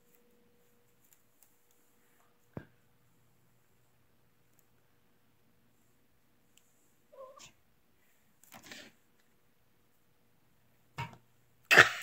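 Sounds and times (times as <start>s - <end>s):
cat meowing faintly: 7.1s - 7.6s.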